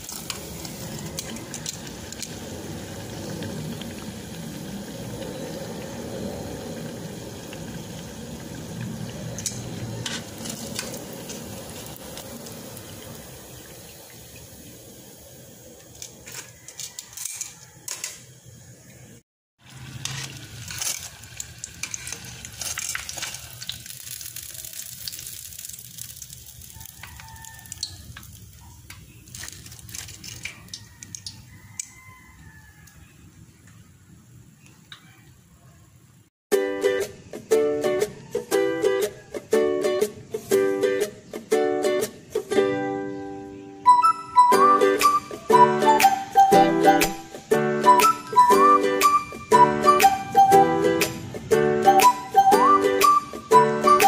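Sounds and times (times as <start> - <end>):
oil crackling and popping: 0.0 - 18.2, 19.6 - 33.0
hot oil sizzling: 0.0 - 34.6, 36.0 - 54.0.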